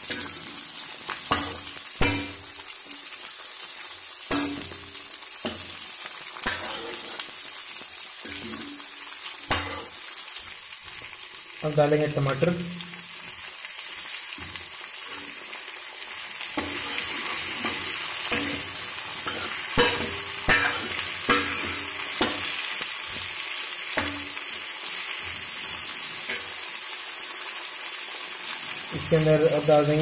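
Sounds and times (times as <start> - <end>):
vegetables sizzling in oil: 0.0 - 30.0
ladle scraping and knocking pan: 16.6 - 22.6.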